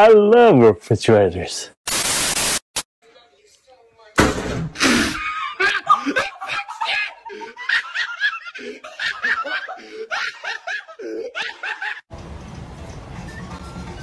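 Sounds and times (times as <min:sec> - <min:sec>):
hearty laughter: 0:05.1 - 0:12.1.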